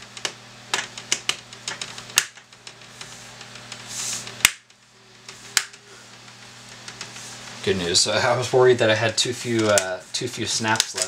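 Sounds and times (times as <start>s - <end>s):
brief scraping hiss: 3.9s - 4.3s.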